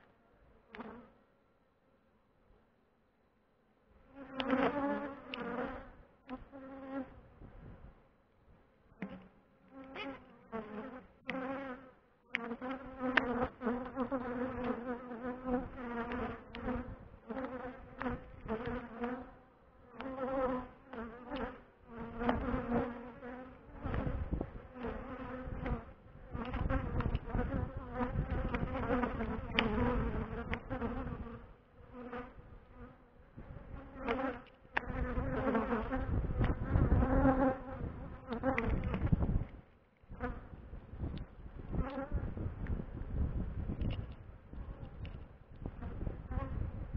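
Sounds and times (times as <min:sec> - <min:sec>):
honeybees buzzing: 0:04.1 - 0:07.2, 0:08.9 - 0:39.2
wind rumble on microphone: 0:07.1 - 0:08.0, 0:15.5 - 0:17.2, 0:23.8 - 0:31.4, 0:33.3 - 0:34.0, 0:34.9 - 0:46.9.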